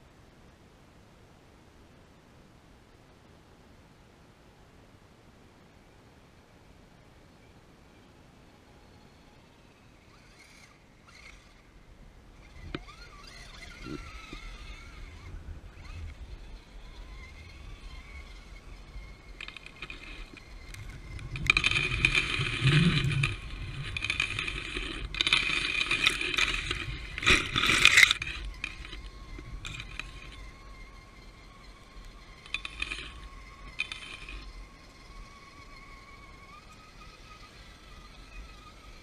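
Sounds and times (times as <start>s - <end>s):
toy car electric motor whirring: 8.5s - 39.0s.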